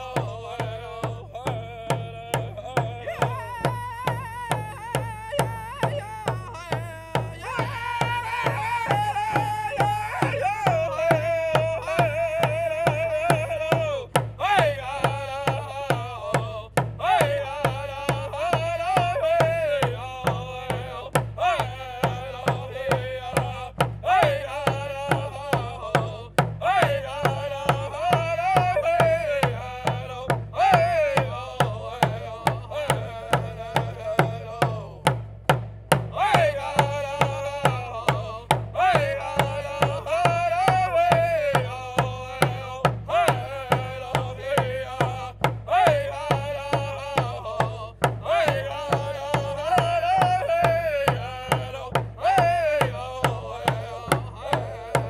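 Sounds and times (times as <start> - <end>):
hand drums beating: 0.0 - 55.0
men singing a chant together: 0.0 - 55.0.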